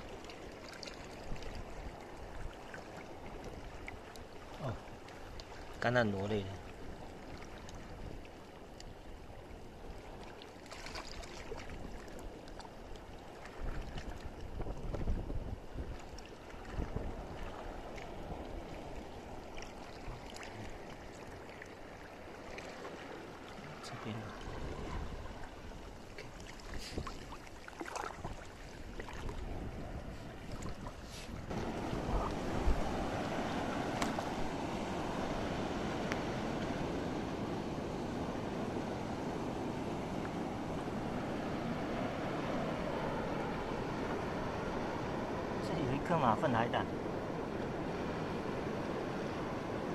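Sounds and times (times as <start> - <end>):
seawater lapping in tide pool: 0.0 - 49.9
water washing over rocks: 10.2 - 12.7, 31.5 - 34.6
wind rumble on microphone: 13.4 - 20.8, 23.8 - 49.9.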